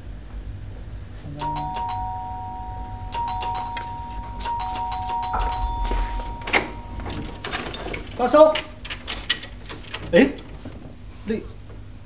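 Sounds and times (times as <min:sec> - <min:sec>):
two-tone doorbell chime: 0:01.4 - 0:08.2.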